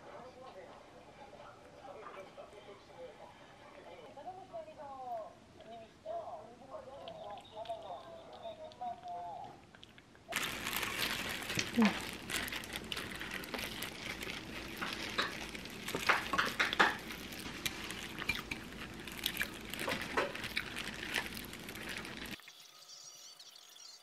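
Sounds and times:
plastic gloves crinkling: 10.3s - 22.4s
wet tearing of meat: 10.3s - 22.4s.

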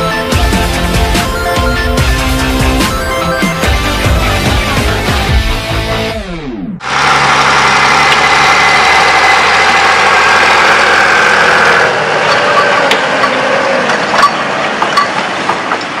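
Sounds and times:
tractor diesel engine running: 0.0s - 16.0s
trailers clattering over road: 11.7s - 16.0s.

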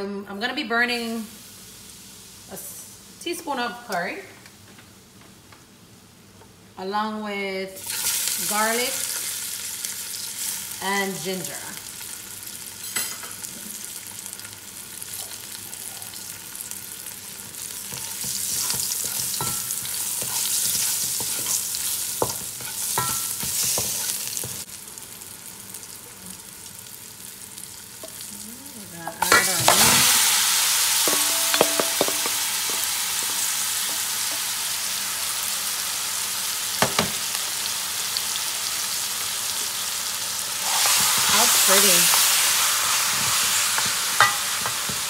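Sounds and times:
food sizzling in hot oil: 7.8s - 45.0s
wooden spoon knocking on pot: 31.1s - 34.4s.

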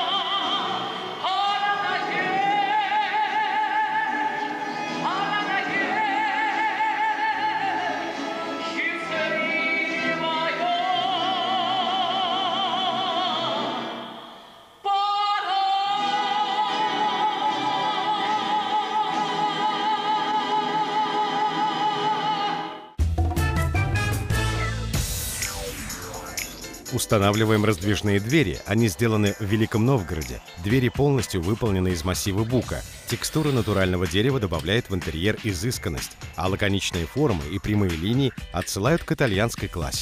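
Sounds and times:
operatic singing with accompaniment: 0.0s - 23.0s.

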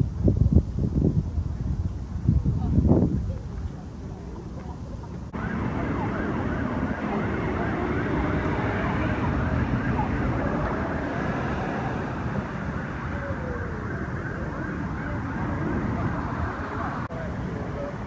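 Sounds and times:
siren yelping: 5.3s - 17.1s.

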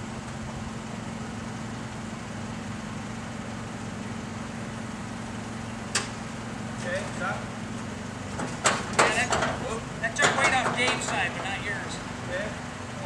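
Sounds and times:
forklift engine idling: 0.0s - 13.0s.

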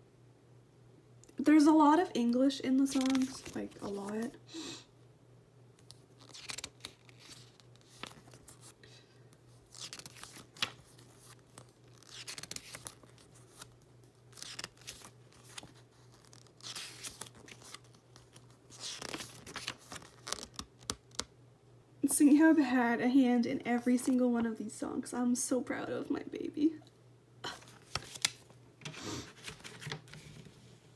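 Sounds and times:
paper pages turning: 2.8s - 4.3s, 5.8s - 8.8s, 9.7s - 21.3s, 27.6s - 30.5s.

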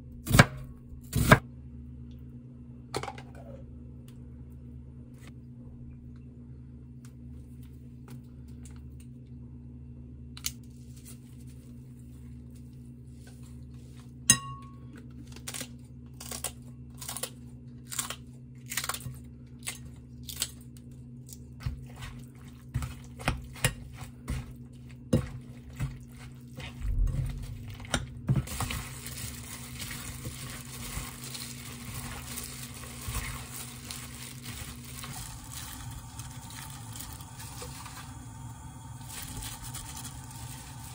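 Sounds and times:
glass bowl clink: 14.3s - 14.8s
gloved hand squishing marinade: 20.7s - 38.2s.

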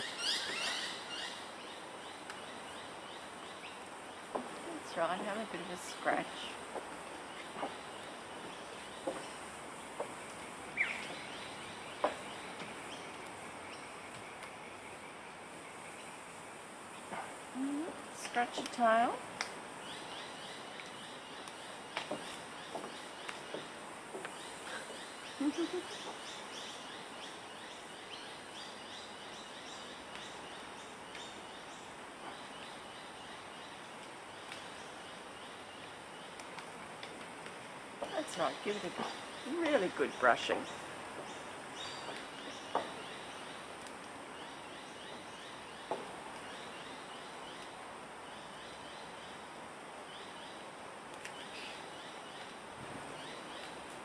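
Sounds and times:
outdoor background hiss: 0.0s - 54.0s.

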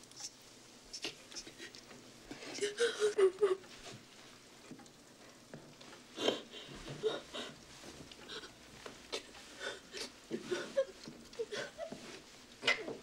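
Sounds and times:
woman weeping softly: 2.6s - 3.7s, 6.2s - 7.6s, 9.2s - 12.1s.

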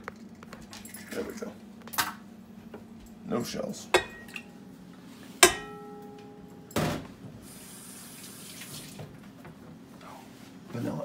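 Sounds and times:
low steady hum: 0.0s - 8.2s
metal bowl struck and ringing: 4.0s - 4.5s, 5.4s - 6.7s.

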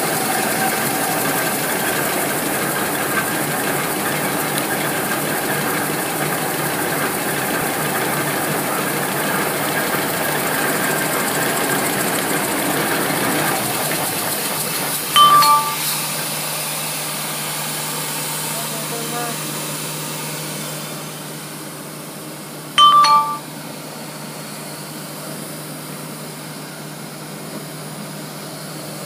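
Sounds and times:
short loud burst with tone: 15.2s - 15.9s, 22.8s - 23.5s.

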